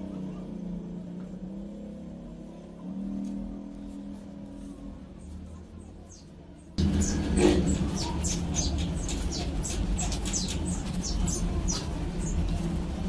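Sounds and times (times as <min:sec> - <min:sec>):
steady low hum: 0:00.0 - 0:13.0
small animal chirping: 0:07.0 - 0:12.6.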